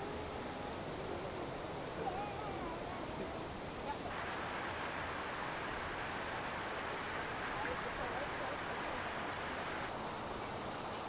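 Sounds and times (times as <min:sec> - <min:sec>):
faint distant voices: 0:00.0 - 0:04.4, 0:06.8 - 0:11.0
river water rushing: 0:00.0 - 0:11.0.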